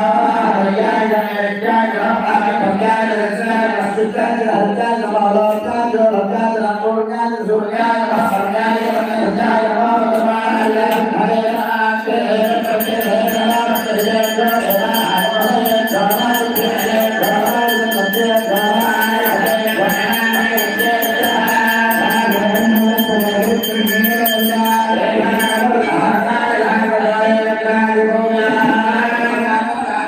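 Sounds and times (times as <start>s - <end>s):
voices chanting in song: 0.0s - 30.0s
fast metallic ringing: 12.0s - 26.7s.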